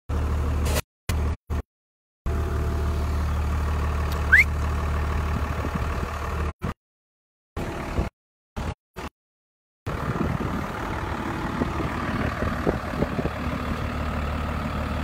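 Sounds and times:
tractor engine droning: 0:02.3 - 0:06.5, 0:09.9 - 0:15.0
short rising squeal: 0:04.2 - 0:04.5.

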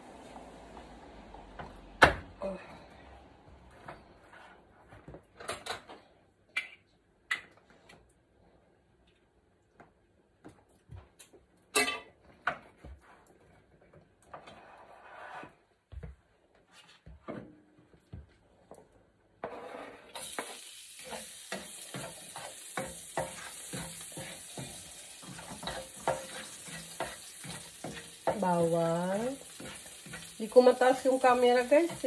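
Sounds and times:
spatula knocking and scraping: 0:19.4 - 0:32.0
food sizzling in oil: 0:20.1 - 0:32.0.

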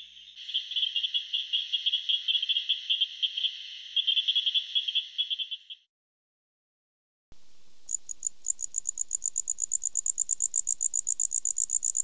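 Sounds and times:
frogs calling with sharp clicks: 0:00.0 - 0:05.8, 0:07.8 - 0:12.0
faint steady high hum: 0:07.4 - 0:12.0.

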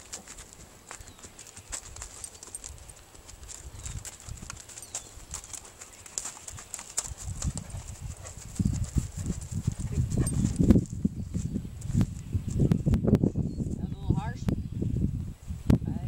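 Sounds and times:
horse hoofbeats on grass: 0:00.0 - 0:13.0.

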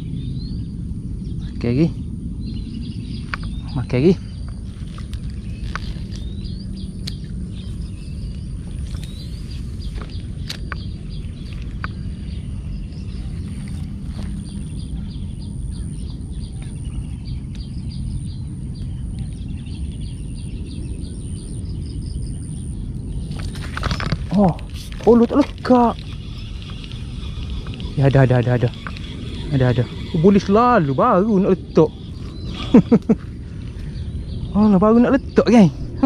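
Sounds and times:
birds chirping: 0:00.0 - 0:36.0
low rumble: 0:00.0 - 0:36.0
high-pitched insect drone: 0:07.6 - 0:35.6
sharp clicks: 0:23.4 - 0:30.4
short high ticking calls: 0:24.4 - 0:33.1.

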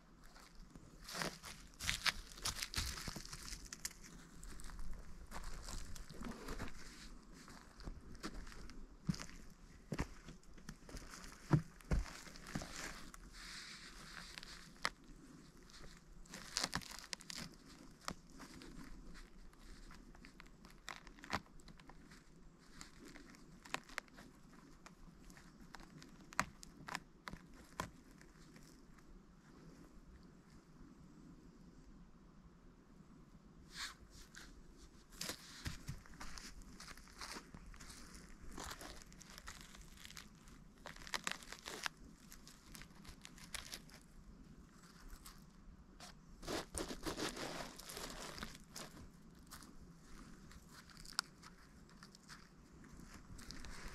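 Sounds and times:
crackling and rustling: 0:00.0 - 0:30.0, 0:33.7 - 0:53.9
sharp crunches: 0:01.0 - 0:28.1, 0:35.2 - 0:44.1, 0:46.0 - 0:53.9
footsteps snapping twigs: 0:01.1 - 0:06.8, 0:15.8 - 0:22.0, 0:35.2 - 0:44.0, 0:50.5 - 0:52.5.

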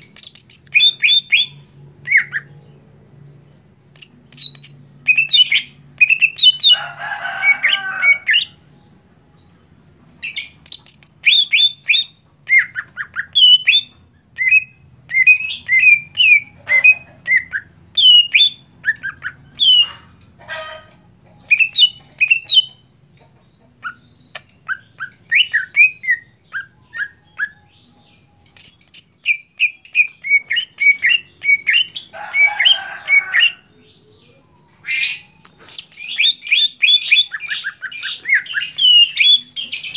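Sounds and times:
bird chirping and whistling: 0:00.0 - 0:02.5, 0:04.0 - 0:06.8, 0:10.2 - 0:20.0, 0:21.4 - 0:22.8, 0:23.8 - 0:39.9
harsh rasping bird call: 0:29.6 - 0:33.9.

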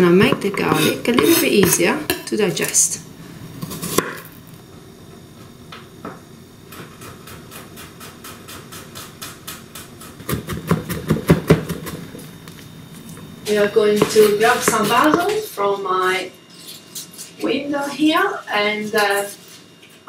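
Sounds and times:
knife chopping on wooden board: 0:07.0 - 0:12.0.

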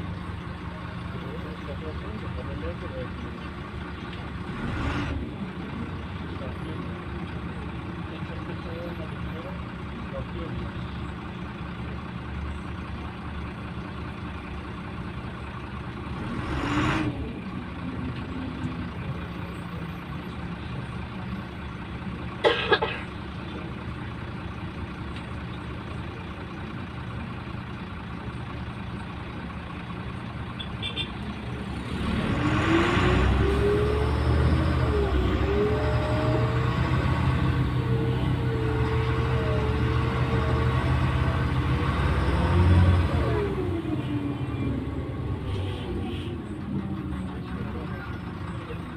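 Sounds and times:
bus engine: 0:00.0 - 0:48.9.

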